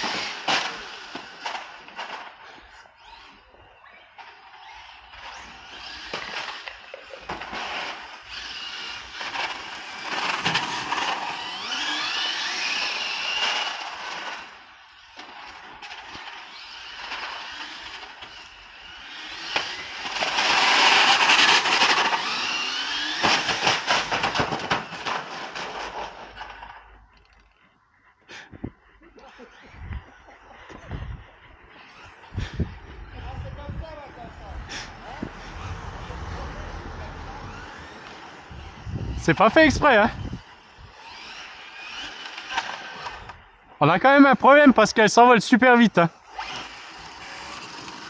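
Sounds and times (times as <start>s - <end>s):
electric motor whine: 0.0s - 25.0s
tyre noise on asphalt: 4.5s - 27.6s.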